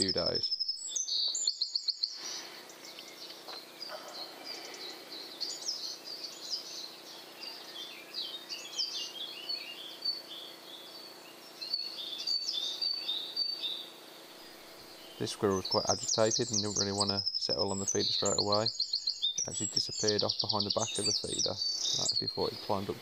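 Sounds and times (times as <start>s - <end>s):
songbirds chirping and singing: 0.0s - 23.0s
faint steady hum: 2.0s - 23.0s.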